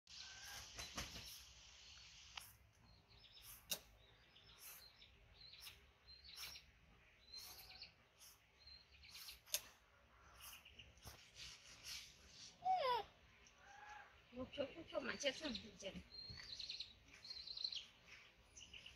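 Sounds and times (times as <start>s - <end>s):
faint high chirps: 0.1s - 11.4s
knife scraping mango peel: 7.3s - 8.4s, 9.0s - 12.2s.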